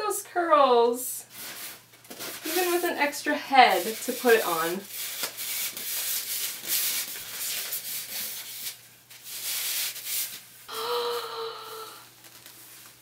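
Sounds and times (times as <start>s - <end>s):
tissue paper rustling: 1.3s - 10.5s, 12.2s - 13.0s.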